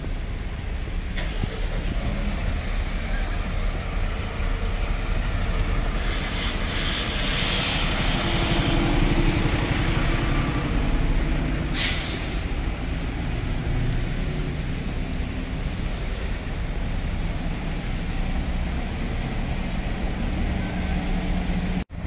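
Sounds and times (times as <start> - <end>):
bus engines idling: 0.0 - 22.0
air brake hiss: 10.9 - 14.8.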